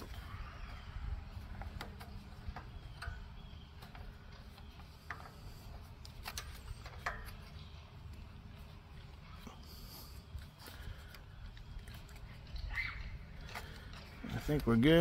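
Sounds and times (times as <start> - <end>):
low steady background rumble: 0.0 - 15.0.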